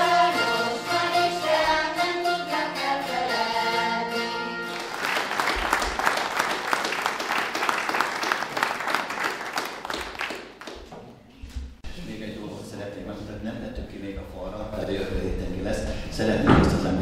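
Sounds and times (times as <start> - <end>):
people singing: 0.0 - 4.4
zither ensemble playing: 0.0 - 4.9
audience applauding: 4.7 - 10.9.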